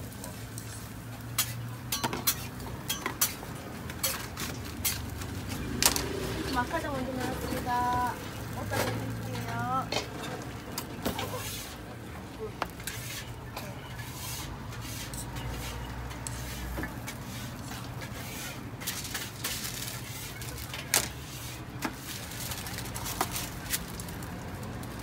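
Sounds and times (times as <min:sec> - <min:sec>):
griddle hissing: 0:11.0 - 0:11.9, 0:14.0 - 0:23.9.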